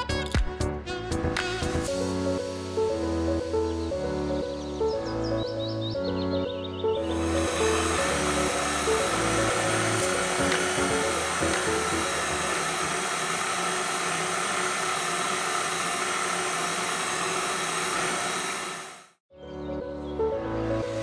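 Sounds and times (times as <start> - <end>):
background music: 0.0 - 13.0, 19.3 - 21.0
stand mixer motor whir: 7.1 - 19.2.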